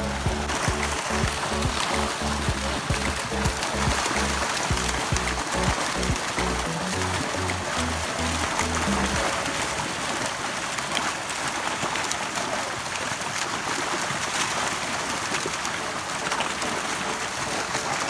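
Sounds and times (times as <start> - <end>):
fish thrashing and splashing: 0.0 - 18.0.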